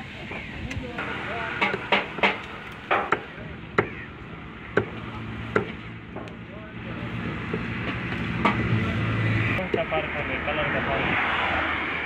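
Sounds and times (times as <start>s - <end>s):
low engine hum: 0.0s - 12.0s
cleaver chopping on wooden block: 4.8s - 5.8s.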